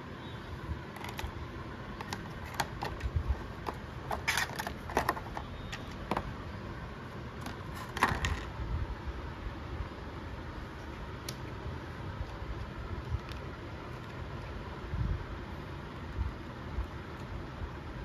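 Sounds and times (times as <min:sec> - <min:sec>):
plastic containers clicking and crinkling: 0:00.9 - 0:01.4, 0:02.0 - 0:06.3, 0:07.4 - 0:08.5.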